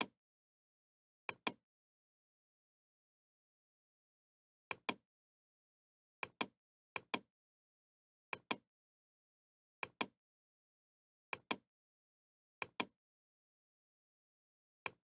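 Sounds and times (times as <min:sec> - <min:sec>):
computer mouse clicks: 0:01.3 - 0:01.6, 0:04.7 - 0:05.0, 0:06.2 - 0:07.3, 0:08.3 - 0:08.6, 0:09.8 - 0:10.2, 0:11.3 - 0:11.6, 0:12.6 - 0:13.0.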